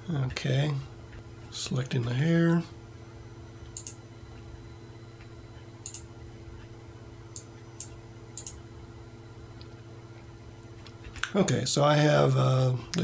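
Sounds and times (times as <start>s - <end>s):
low electrical hum: 0.0s - 13.0s
computer mouse clicking: 3.7s - 4.0s, 5.2s - 6.1s, 7.4s - 8.6s.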